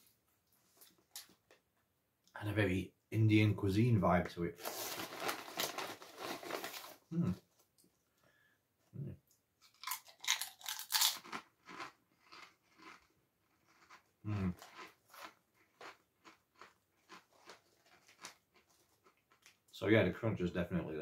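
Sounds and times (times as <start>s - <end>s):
potato chips crunching: 4.7s - 7.0s, 9.6s - 19.6s.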